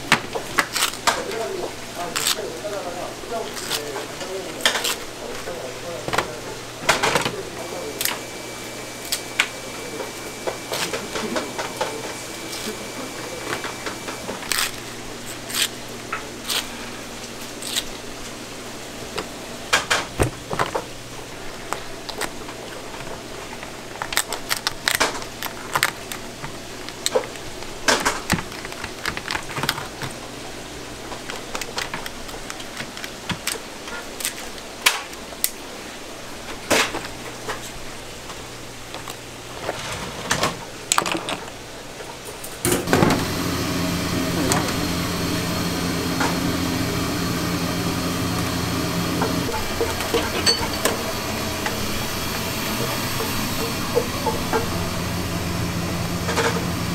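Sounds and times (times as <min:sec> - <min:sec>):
low machine hum: 0:00.0 - 0:56.9
scissors snipping crab shell: 0:00.6 - 0:01.4, 0:02.1 - 0:02.5, 0:03.5 - 0:05.0, 0:14.3 - 0:15.8, 0:16.4 - 0:16.7, 0:17.5 - 0:18.0, 0:31.3 - 0:35.6.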